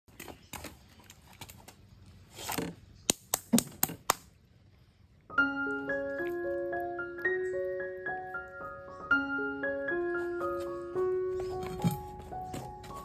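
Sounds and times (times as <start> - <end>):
gentle piano music: 5.2 - 13.0.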